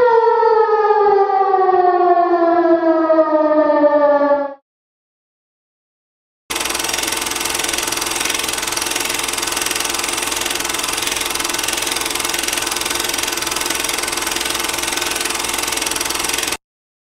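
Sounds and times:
steady mechanical running: 0:06.5 - 0:16.6.

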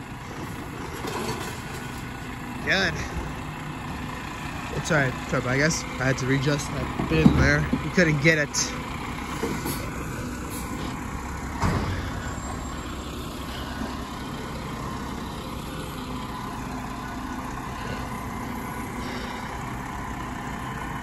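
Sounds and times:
garbage truck engine running: 0:00.0 - 0:21.0
hydraulic bin arm working: 0:06.6 - 0:14.7.

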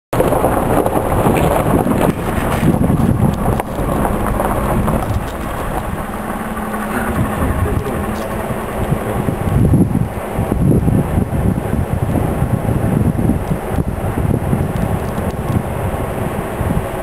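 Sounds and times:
tyre and road noise: 0:00.1 - 0:17.0
car engine hum: 0:00.2 - 0:17.0.

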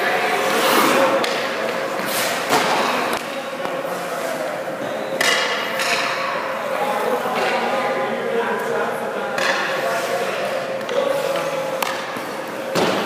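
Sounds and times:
skate blades scraping ice: 0:00.4 - 0:01.2.

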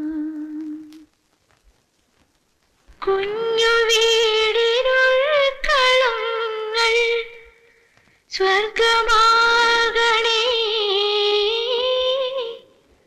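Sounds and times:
woman singing: 0:00.0 - 0:01.1, 0:03.0 - 0:07.6, 0:08.3 - 0:12.8.

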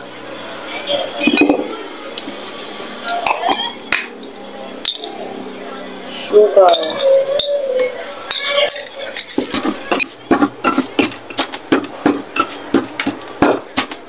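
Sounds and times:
metal spoon scraping stone mortar: 0:08.7 - 0:13.1.

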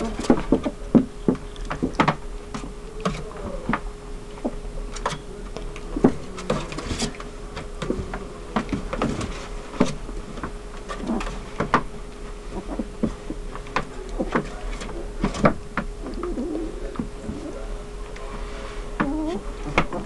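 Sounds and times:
faint steady hum: 0:00.0 - 0:20.0
puppies squeaking and whimpering: 0:16.0 - 0:17.6.

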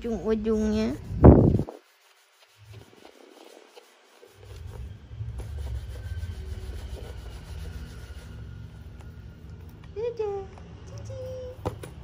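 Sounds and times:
cloth scrubbing handbag: 0:00.8 - 0:08.3.

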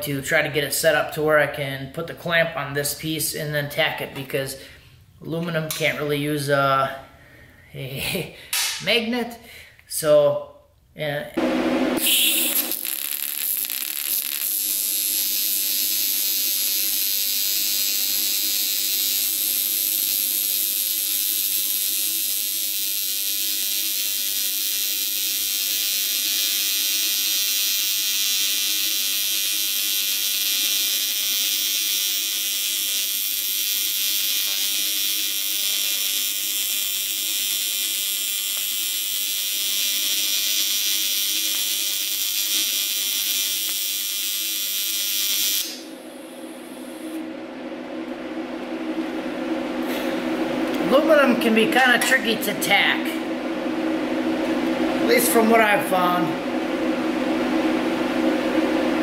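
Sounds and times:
welding arc buzzing: 0:11.4 - 0:47.3.

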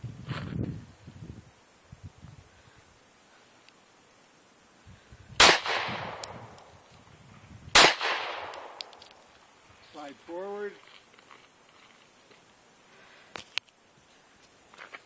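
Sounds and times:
pistol shots echoing: 0:05.4 - 0:06.5, 0:07.8 - 0:09.0
light metallic pings: 0:06.2 - 0:06.7, 0:08.5 - 0:09.4.

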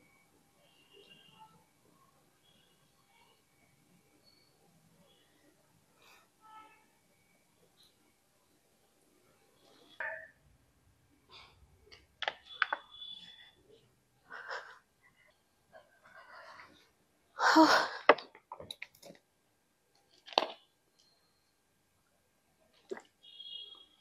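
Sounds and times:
woman sighing and breathing: 0:17.4 - 0:18.2.

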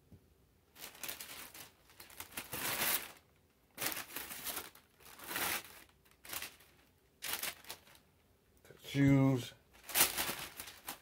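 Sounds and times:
tissue paper crinkling: 0:00.7 - 0:08.0, 0:09.7 - 0:11.0.

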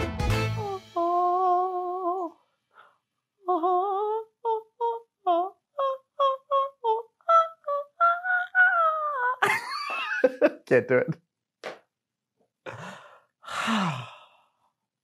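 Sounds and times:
background music: 0:00.0 - 0:02.2.

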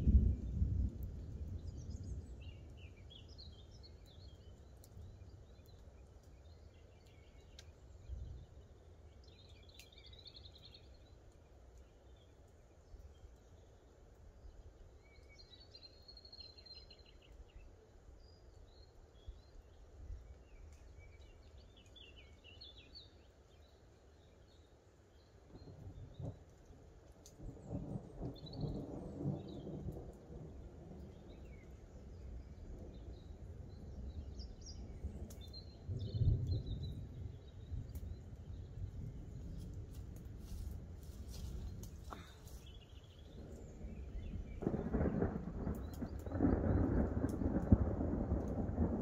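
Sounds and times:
songbirds chirping and trilling: 0:00.0 - 0:49.0
low outdoor rumble: 0:29.0 - 0:49.0.

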